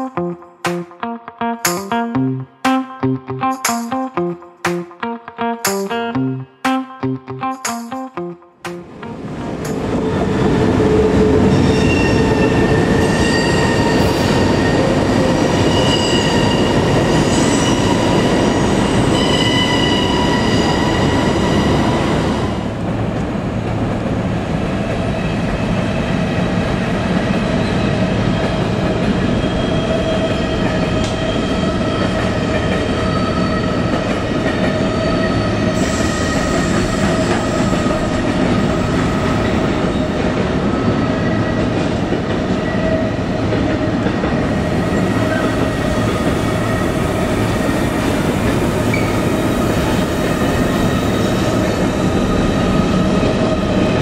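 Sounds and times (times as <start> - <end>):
trains passing: 0.0 - 54.0
rumble of train wheels: 9.1 - 54.0.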